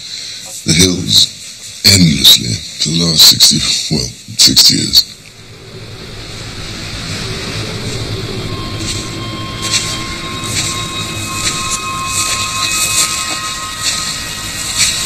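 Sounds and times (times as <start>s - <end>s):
rushing wind: 5.2s - 15.0s
faint high held tone: 5.3s - 15.0s
footsteps through dry grass: 8.8s - 15.0s.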